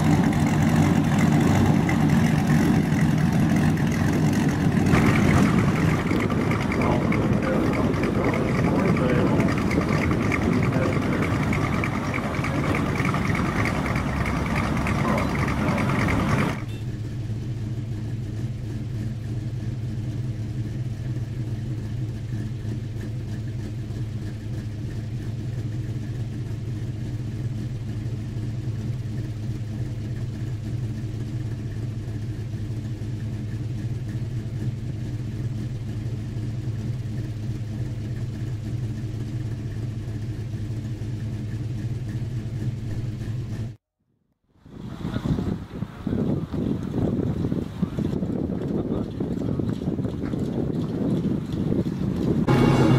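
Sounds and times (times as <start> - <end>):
cars driving in: 0.0 - 16.7, 52.0 - 52.9
steady engine hum: 0.0 - 52.9.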